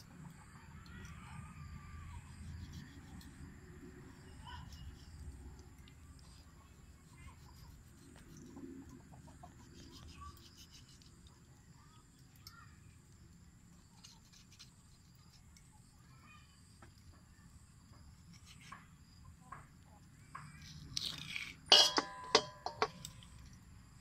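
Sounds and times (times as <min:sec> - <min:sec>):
faint chicken clucks: 0:00.0 - 0:03.4, 0:06.8 - 0:12.1
knife scraping skin: 0:20.6 - 0:23.2.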